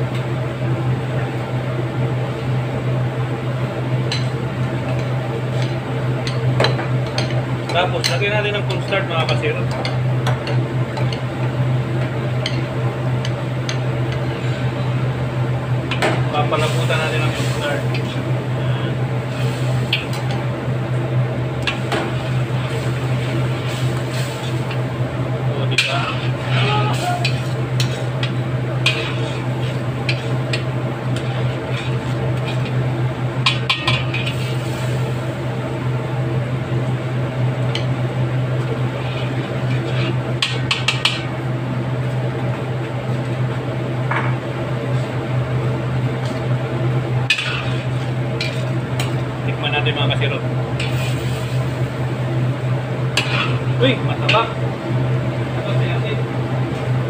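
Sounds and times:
steady low hum: 0.0s - 57.0s
metal spoon scraping a wok: 28.9s - 30.4s, 31.2s - 32.7s, 39.0s - 40.2s, 47.3s - 48.7s, 53.2s - 53.6s.

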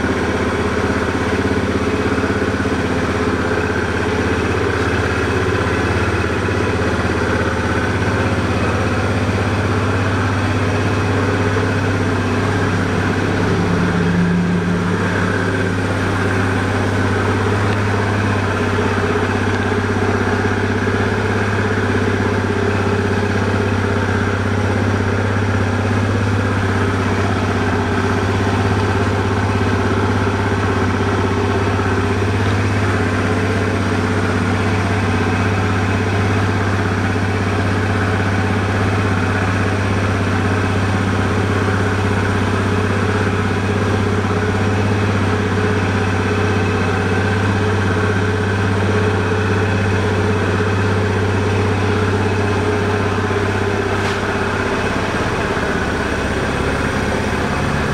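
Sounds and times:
scooter engine idling: 0.0s - 57.9s.

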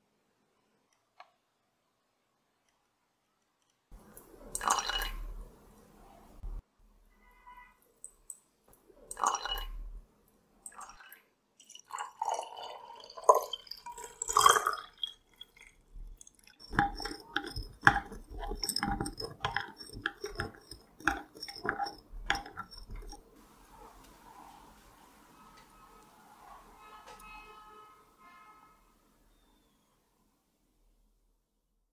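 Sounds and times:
drink pouring into glass: 4.0s - 5.5s, 9.1s - 10.0s, 10.7s - 23.2s
straw clinking against glass: 11.6s - 23.2s.

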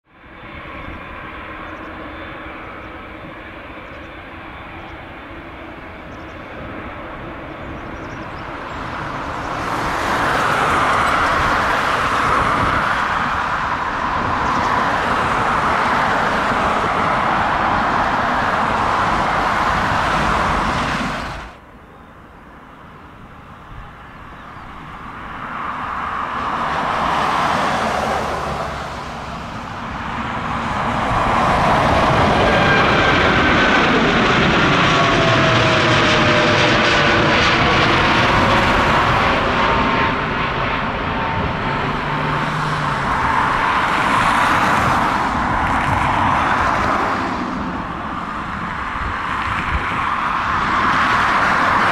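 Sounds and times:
jet engines taxiing: 0.1s - 51.9s
jet taking off: 0.1s - 51.9s.

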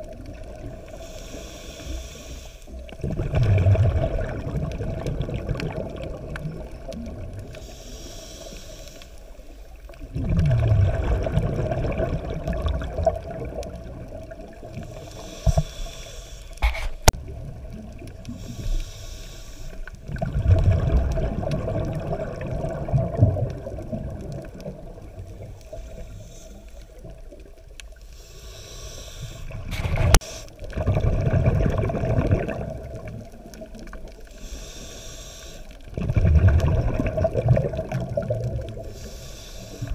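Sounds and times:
regulator hiss on inhale: 0.7s - 2.9s, 7.4s - 9.9s, 14.7s - 17.1s, 18.3s - 20.0s, 25.4s - 27.2s, 27.9s - 30.7s, 34.2s - 35.9s, 38.8s - 39.9s
rumble of exhaust bubbles: 3.0s - 7.5s, 10.1s - 14.7s, 20.0s - 25.6s, 29.6s - 33.7s, 35.9s - 39.0s.

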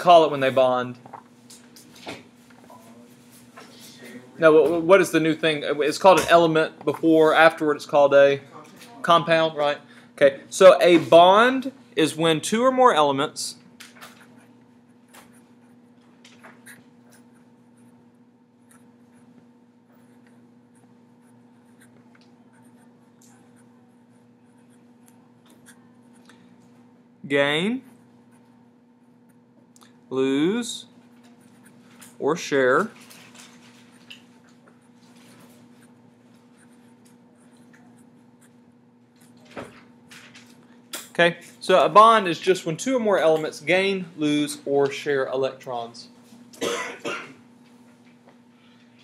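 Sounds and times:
steady low hum: 0.0s - 49.0s
marker scratching on paper: 34.8s - 38.6s.

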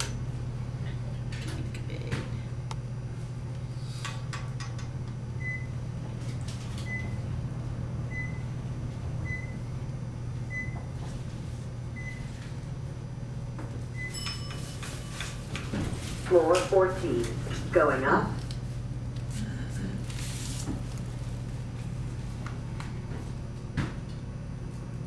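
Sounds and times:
elevator humming: 0.0s - 25.0s
higher elevator chime: 13.9s - 15.5s.

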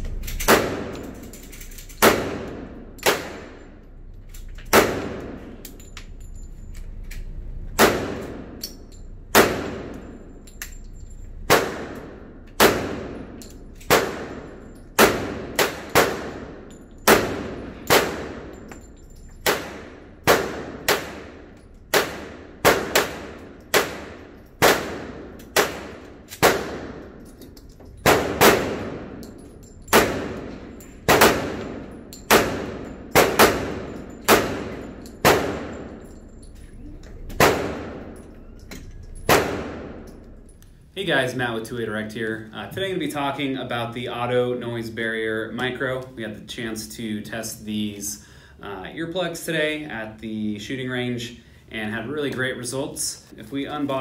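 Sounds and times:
pistol shots echoing indoors: 0.0s - 4.0s, 4.6s - 6.2s, 7.2s - 40.4s.

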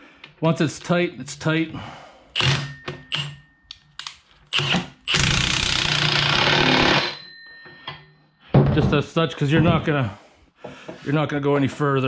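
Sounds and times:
impact wrench hammering: 2.4s - 7.2s.

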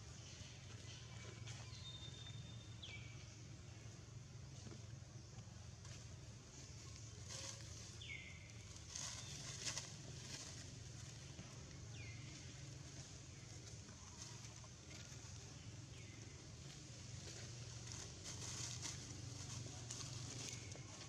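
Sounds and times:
dry leaves rustling: 5.8s - 21.0s.

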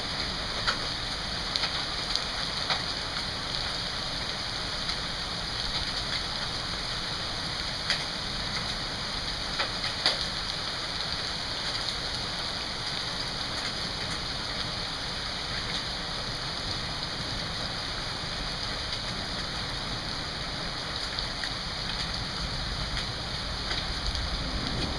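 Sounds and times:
rain falling on pavement and lawn: 0.0s - 24.9s
sharp ticks of hail: 0.1s - 5.0s, 7.8s - 10.6s, 21.0s - 24.9s.

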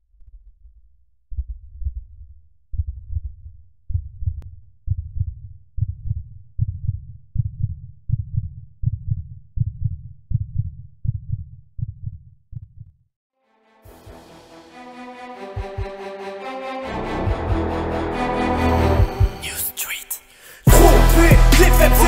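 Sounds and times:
heartbeat double thumps: 0.4s - 12.9s, 15.5s - 16.0s, 17.1s - 17.7s, 18.8s - 19.4s, 20.7s - 22.0s.

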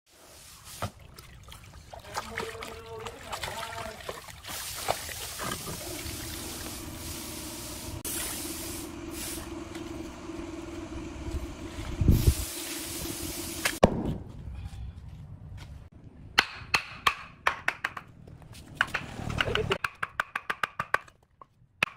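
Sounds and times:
muddy water splashing and pouring: 0.3s - 6.9s
steady low hum: 5.6s - 15.6s.

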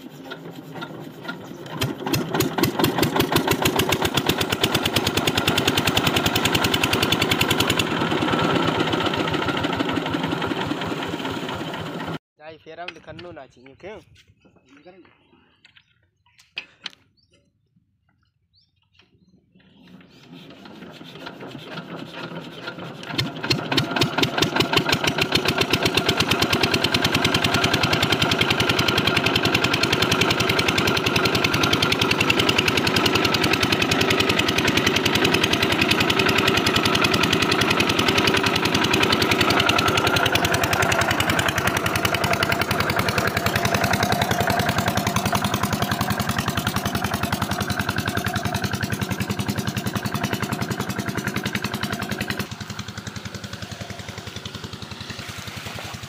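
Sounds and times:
small diesel engine starting and running: 0.0s - 12.2s, 18.6s - 56.0s.

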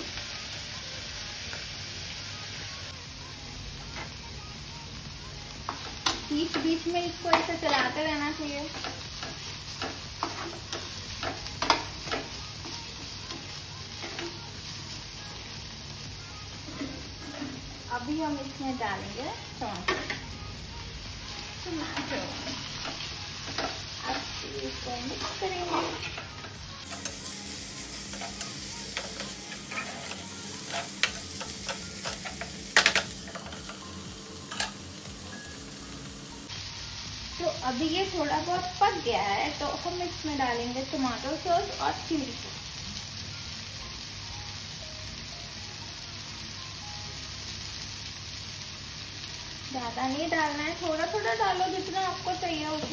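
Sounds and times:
vegetables sizzling in a pan: 0.0s - 52.9s
metal spatula scraping pan: 25.2s - 26.4s, 28.2s - 31.2s
spatula scraping and knocking pan: 29.0s - 33.6s.

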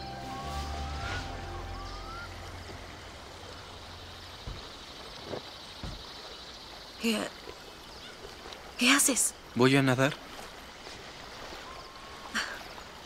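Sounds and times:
rising whistled notes: 0.0s - 4.0s
film soundtrack music: 0.0s - 4.8s
river water flowing: 0.0s - 13.0s
soft knocks: 4.4s - 6.1s.

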